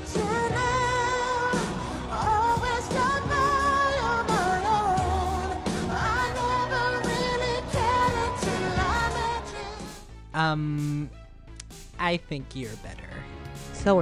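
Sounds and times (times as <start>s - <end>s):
lead vocal with vibrato: 0.0s - 10.2s.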